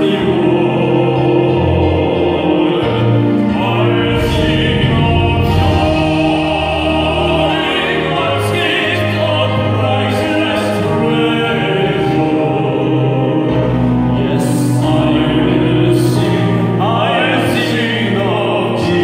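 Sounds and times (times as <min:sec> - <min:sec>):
male vocal quartet singing in harmony: 0:00.0 - 0:19.0
low bass line: 0:01.2 - 0:08.2.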